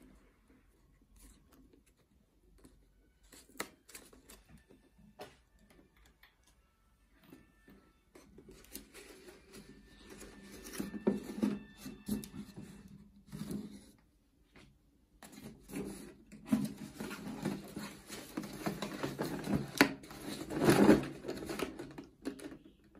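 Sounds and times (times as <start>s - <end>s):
paper rustling: 15.2s - 22.4s.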